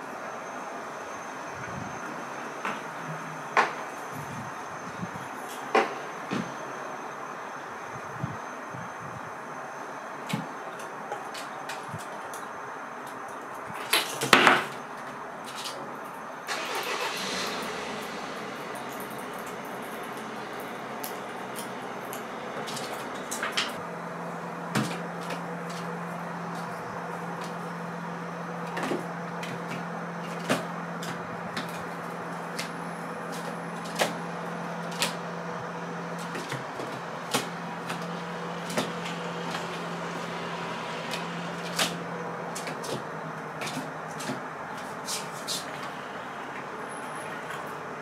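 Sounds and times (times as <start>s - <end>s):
low steady hum: 16.5s - 45.0s.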